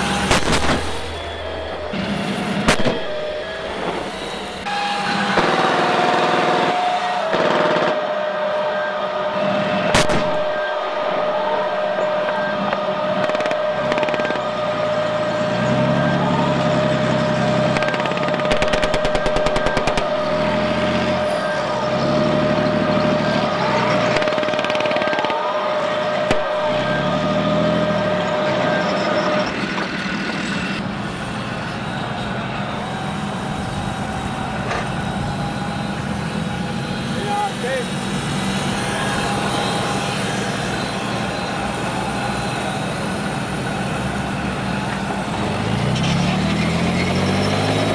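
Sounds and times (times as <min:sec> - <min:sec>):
electronic steady whine: 0:00.0 - 0:45.8
electronic engine revs: 0:00.0 - 0:47.9
machine-gun fire burst: 0:00.2 - 0:01.2, 0:05.3 - 0:08.0.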